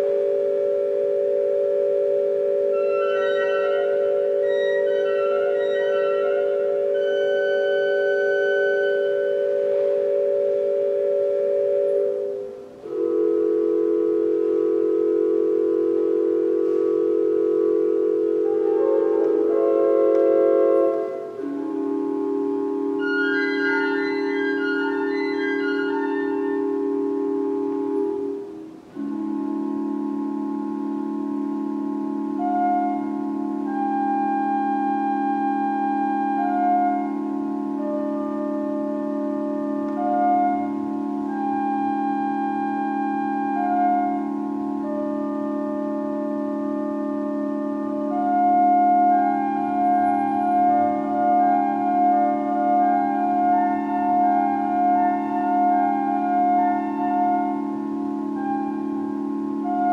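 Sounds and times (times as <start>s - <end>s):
organ playing sustained chords: 0.0s - 59.9s.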